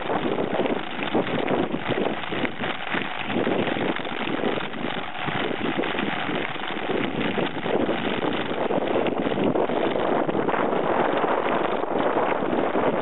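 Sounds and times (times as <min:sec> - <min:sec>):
bike rattling over bumps: 0:00.0 - 0:13.0
wind on microphone: 0:00.0 - 0:13.0.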